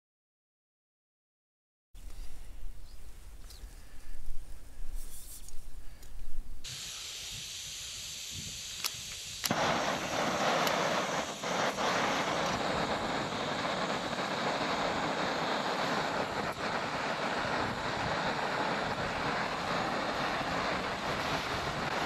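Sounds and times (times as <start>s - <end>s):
gas hissing: 5.8s - 22.0s
burner roaring: 9.4s - 22.0s.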